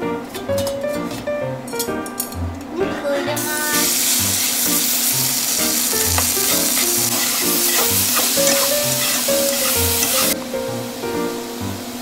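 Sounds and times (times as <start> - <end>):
meat sizzling in a pan: 3.4 - 10.8.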